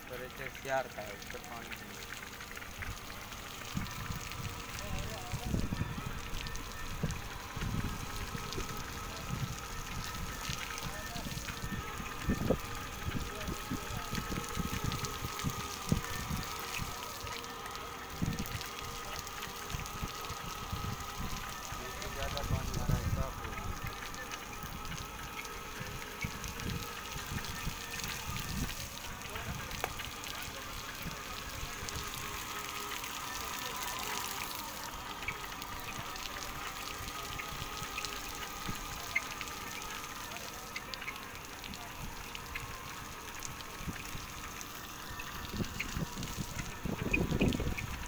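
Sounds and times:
machine whine: 0.0 - 48.0
water spraying over panels: 0.0 - 48.0
wind buffeting microphone: 2.7 - 17.0, 18.1 - 29.9, 45.2 - 48.0.

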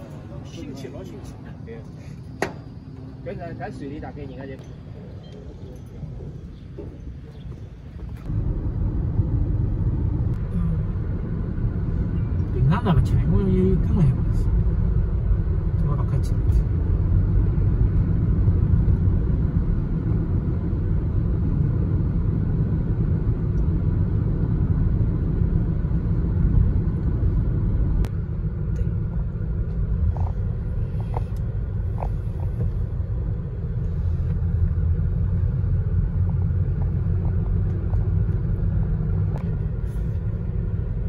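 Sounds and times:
car road noise rumble: 0.0 - 41.0.

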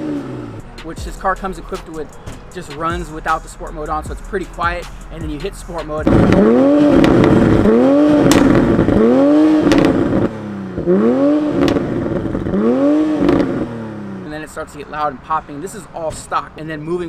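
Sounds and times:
car engine revving: 0.0 - 16.2
exhaust pops: 0.8 - 14.4.

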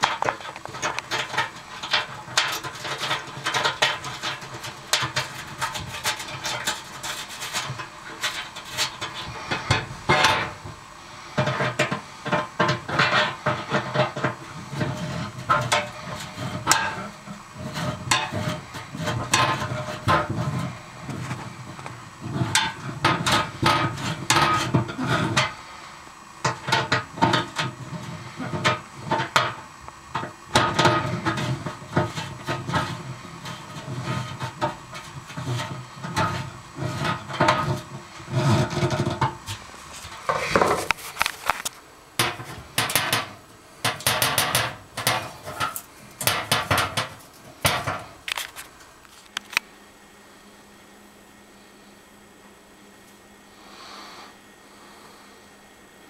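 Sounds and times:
screwdriver on sheet metal: 0.0 - 10.7, 30.2 - 48.6.

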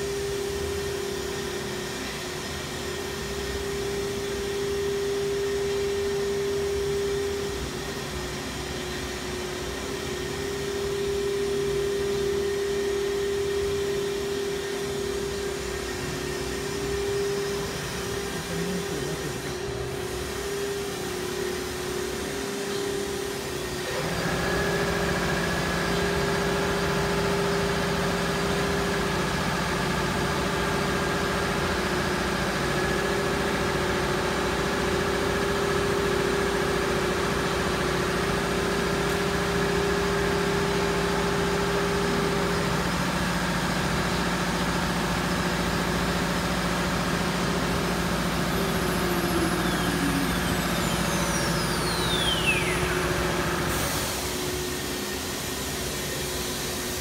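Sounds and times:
cnc router machine hum: 0.0 - 57.0
high whine falling in pitch: 47.4 - 53.8.

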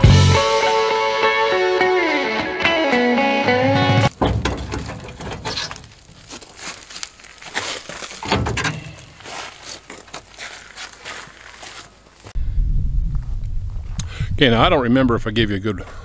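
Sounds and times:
dull thump: 4.1 - 6.0, 8.2 - 9.1
metal knocks and scrapes: 4.1 - 6.4, 8.1 - 9.4
cardboard rustling: 4.1 - 12.4.

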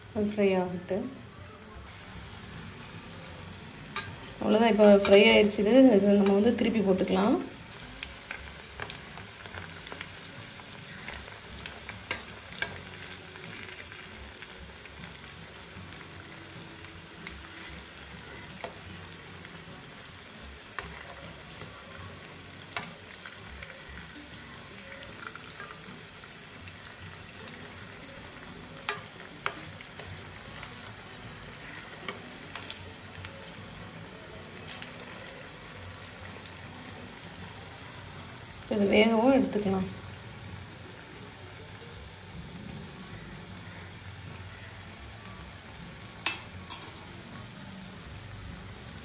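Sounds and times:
fritters sizzling in hot oil: 0.0 - 49.0
metal spoon clinking on pan: 4.0 - 4.2, 4.9 - 5.4, 28.8 - 29.6, 46.2 - 47.2.

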